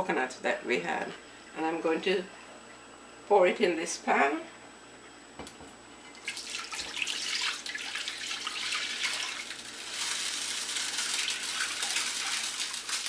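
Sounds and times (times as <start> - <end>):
coconut milk pouring into pan: 6.2 - 13.0.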